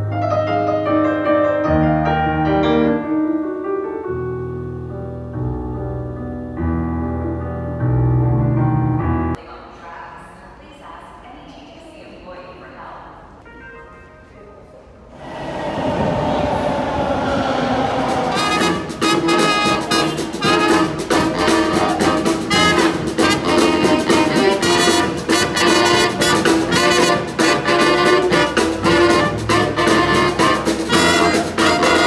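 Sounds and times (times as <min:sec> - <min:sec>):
subway train rumble: 0:15.1 - 0:32.0
brass band playing upbeat tune: 0:17.8 - 0:32.0
drum beat: 0:18.0 - 0:32.0.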